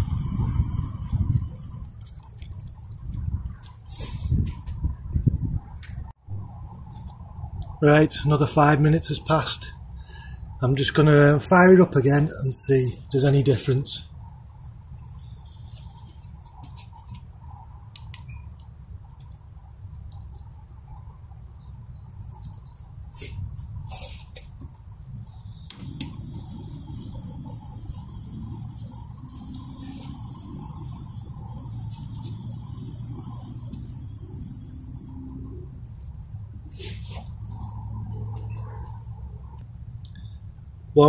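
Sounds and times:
gas hissing from burner: 0.0 - 2.0, 25.3 - 35.3.

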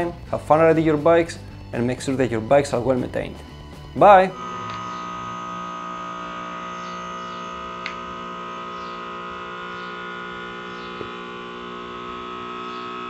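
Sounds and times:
sustained drone chord: 2.7 - 13.0.

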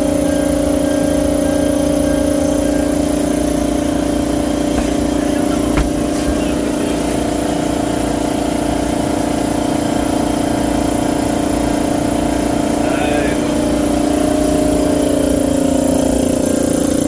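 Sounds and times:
machine hum: 0.0 - 8.3.

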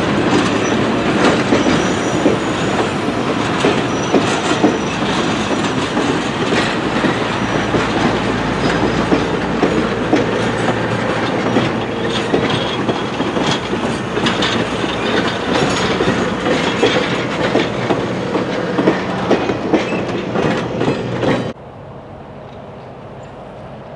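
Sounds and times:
train clicks and clatter: 0.0 - 21.6
train wheels rumbling on rails: 0.0 - 23.9.

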